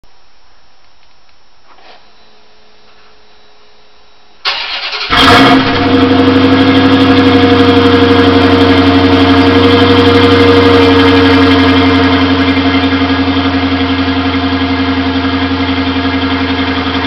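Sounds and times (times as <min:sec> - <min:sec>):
car engine revving and idling: 0:05.0 - 0:17.0.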